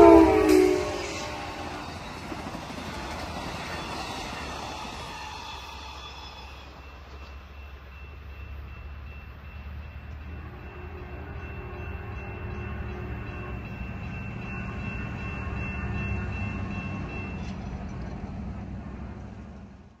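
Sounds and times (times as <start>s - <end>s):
passenger train rumbling: 0.0s - 20.0s
high-pitched ringing tone: 3.7s - 17.6s.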